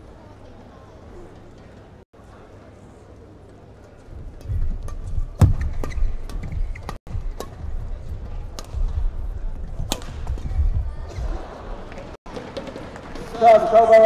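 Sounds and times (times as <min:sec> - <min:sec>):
racket striking shuttlecock: 0:04.8 - 0:07.7, 0:09.9 - 0:10.4.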